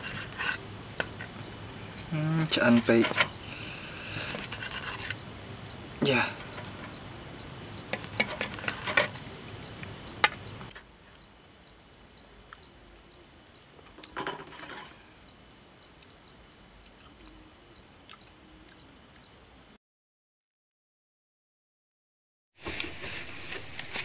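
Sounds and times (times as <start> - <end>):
insect chirping: 0.0 - 19.8.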